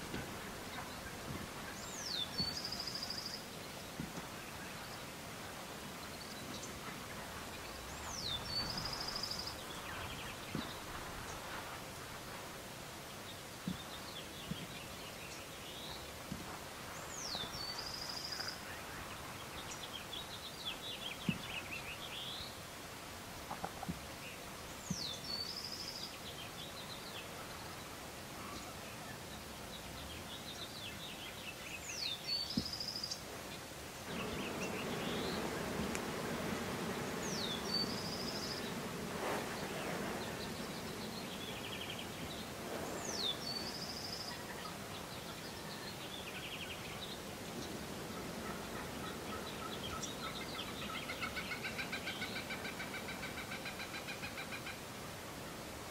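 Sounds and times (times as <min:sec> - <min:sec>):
songbird singing: 0:00.0 - 0:55.9
low rushing noise: 0:33.7 - 0:50.8.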